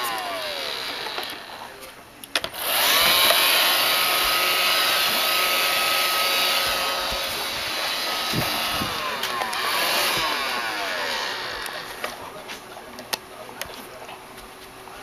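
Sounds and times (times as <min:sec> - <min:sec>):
robot vacuum motor whine: 0:00.0 - 0:01.7, 0:02.6 - 0:12.1
vacuum brush noise: 0:00.0 - 0:01.7, 0:02.6 - 0:12.6
clicks: 0:00.9 - 0:02.6.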